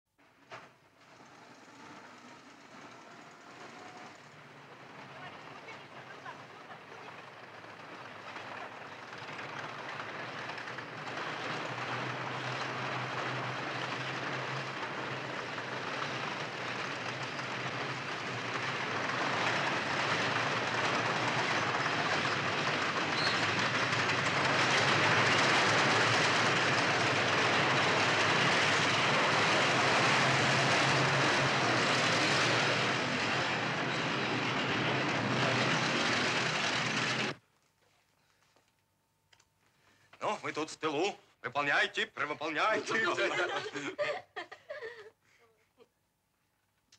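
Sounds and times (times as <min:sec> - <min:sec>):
clattering tank tracks: 0:00.2 - 0:37.4
tank engines: 0:00.2 - 0:37.4, 0:41.6 - 0:43.9.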